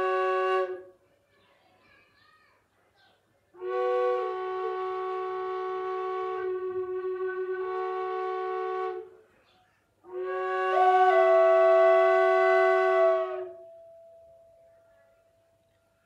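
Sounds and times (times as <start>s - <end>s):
wooden drone flute playing: 0.0s - 0.9s, 3.6s - 9.0s, 10.1s - 14.5s.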